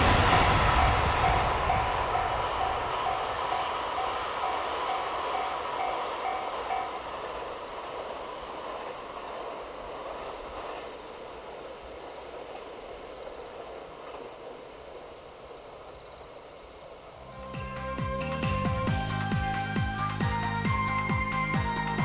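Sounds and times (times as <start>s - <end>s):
electric train rumbling past: 0.0s - 22.0s
steady high hiss: 0.0s - 22.0s.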